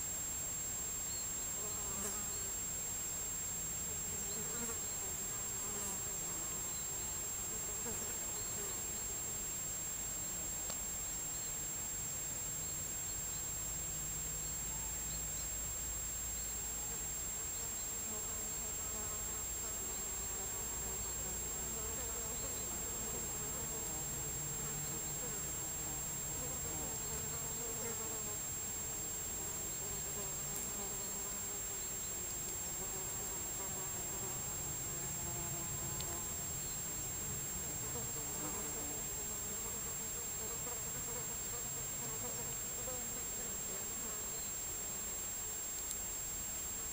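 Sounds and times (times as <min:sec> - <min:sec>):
faint hum and hiss: 0:00.0 - 0:46.9
flying insects buzzing: 0:00.0 - 0:46.9.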